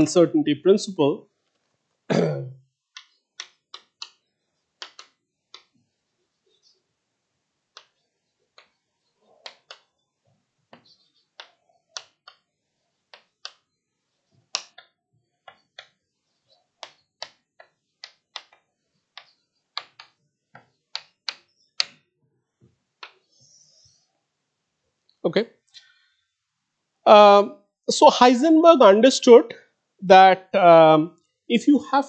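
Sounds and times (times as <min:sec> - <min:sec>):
chalk tapping on blackboard: 0:03.0 - 0:04.2, 0:04.8 - 0:05.7, 0:07.7 - 0:08.8, 0:09.4 - 0:09.9, 0:10.7 - 0:12.5, 0:13.1 - 0:13.6, 0:14.5 - 0:14.9, 0:15.5 - 0:16.0, 0:16.8 - 0:22.0.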